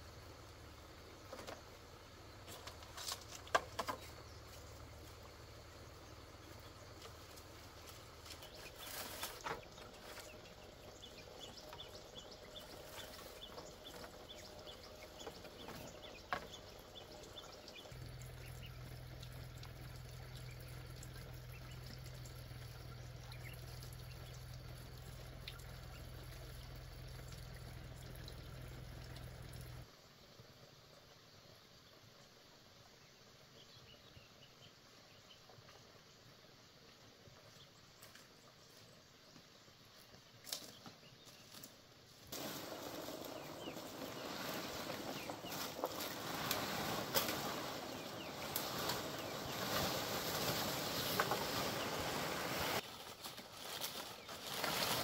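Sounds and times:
bamboo poles knocking and rustling: 1.2 - 1.8, 2.4 - 4.7, 7.0 - 10.3, 15.2 - 16.7.

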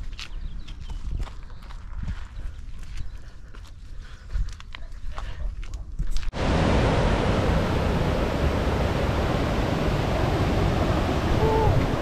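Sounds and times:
creek rushing over rocks: 6.3 - 12.0.

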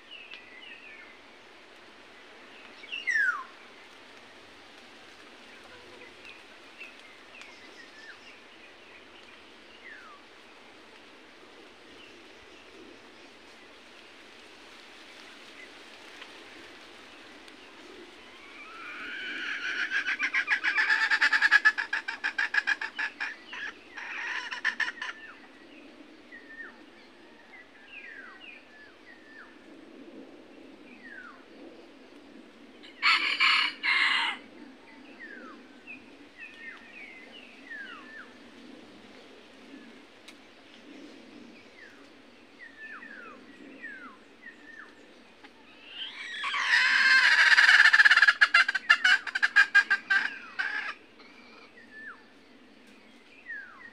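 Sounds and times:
rooster crowing: 33.0 - 34.5.

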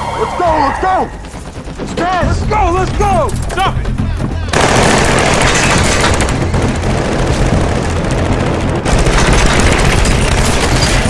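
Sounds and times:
rapid automatic gunfire: 4.5 - 11.0.

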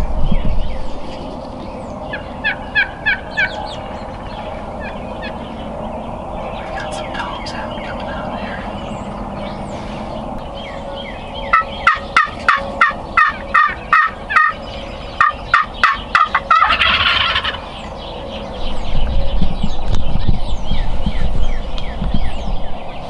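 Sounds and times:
low rumble: 0.0 - 23.0
wild turkeys calling: 2.0 - 5.6, 6.6 - 18.5.

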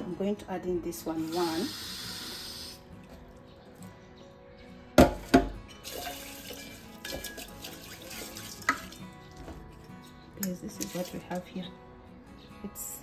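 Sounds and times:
faint background music: 0.0 - 13.0
water running from tap: 1.2 - 2.8, 5.8 - 9.0, 10.8 - 11.5
kitchenware clattering: 5.0 - 9.7.

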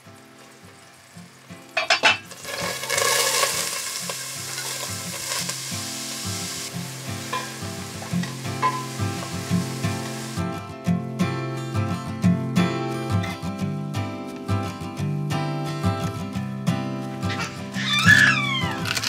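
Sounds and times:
onions sizzling in hot oil: 0.0 - 10.6, 17.4 - 19.0.

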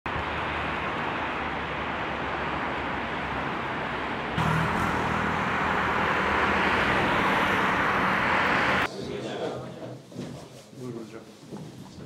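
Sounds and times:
passing vehicles: 0.1 - 8.9.

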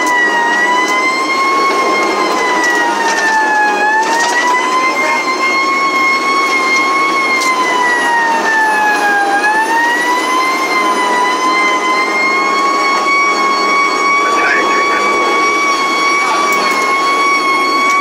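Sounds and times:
fire truck siren wailing: 0.0 - 18.0
truck running noise: 0.0 - 18.0.

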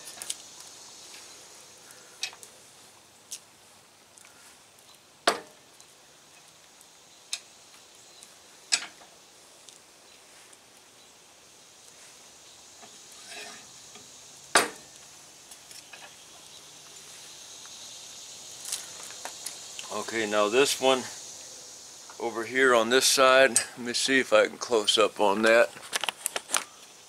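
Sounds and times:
faint ticks: 5.8 - 8.3.

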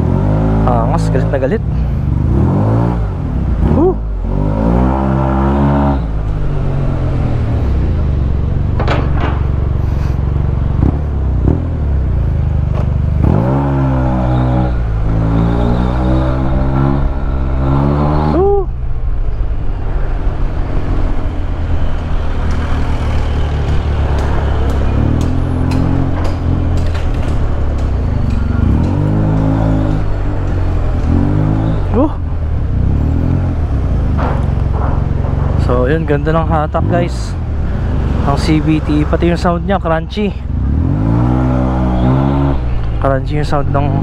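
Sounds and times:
wind and road noise: 0.0 - 44.0.

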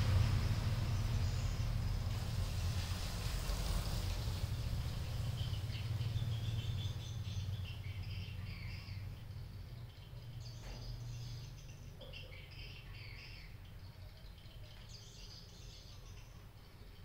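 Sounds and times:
small birds chirping: 0.0 - 2.8, 3.6 - 17.0
steady low rumble: 0.0 - 10.4.

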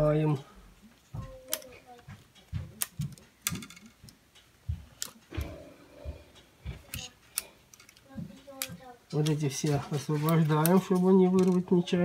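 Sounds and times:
cable connectors clicking: 10.2 - 11.7.

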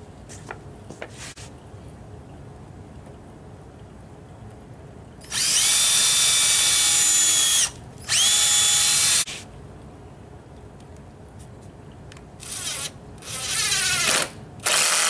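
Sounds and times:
drill motor whine: 5.2 - 9.4, 12.4 - 15.0.

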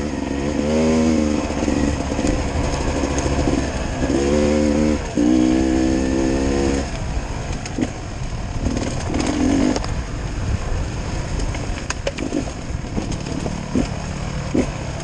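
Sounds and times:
dirt bike engine revving: 0.0 - 6.9, 8.6 - 9.9, 12.2 - 15.0
bike knocks and rattles: 11.4 - 14.7.

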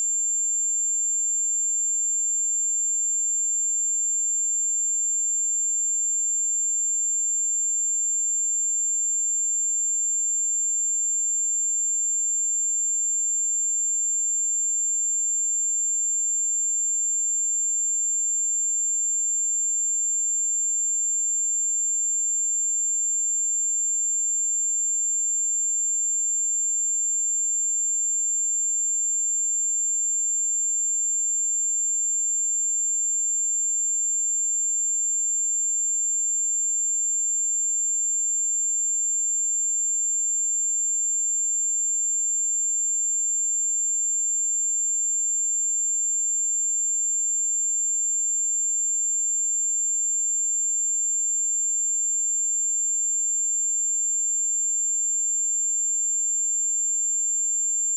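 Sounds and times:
high-pitched sine test tone: 0.0 - 41.0, 53.8 - 57.9.

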